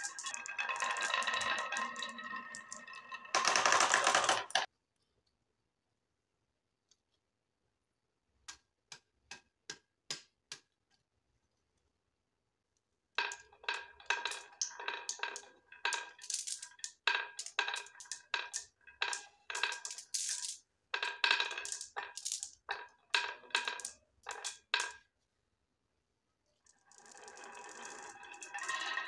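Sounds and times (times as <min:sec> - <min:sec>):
marbles clacking on wooden track: 0:00.0 - 0:04.7, 0:13.2 - 0:25.0, 0:26.7 - 0:29.0.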